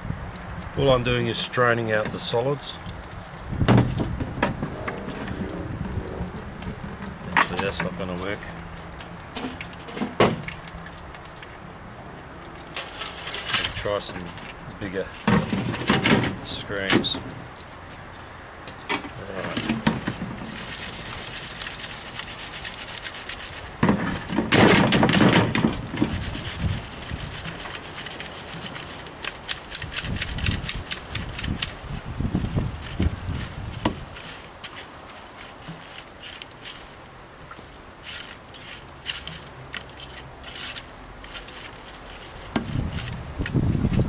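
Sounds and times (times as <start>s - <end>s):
sieves handling noise: 0.0s - 44.0s
silt scraping on metal sieve: 4.2s - 10.6s, 12.7s - 17.6s, 19.2s - 29.8s, 30.8s - 44.0s.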